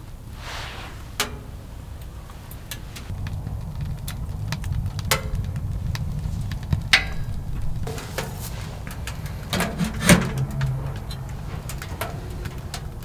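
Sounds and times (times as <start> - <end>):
low steady rumble: 0.0 - 13.0
sharp clicks and clinks at stove: 7.0 - 13.0.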